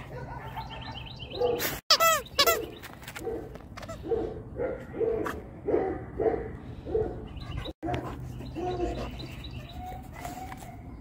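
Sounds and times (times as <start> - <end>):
squeaky toy squeaking: 1.9 - 2.7
birds chirping faintly: 6.3 - 11.0.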